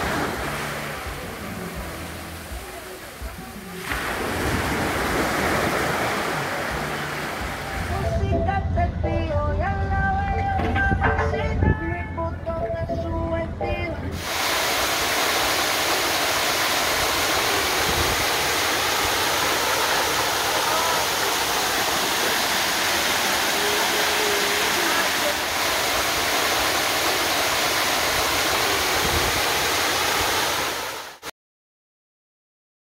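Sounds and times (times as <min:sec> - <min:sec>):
waterfall rushing: 0:00.0 - 0:08.2, 0:14.2 - 0:31.3.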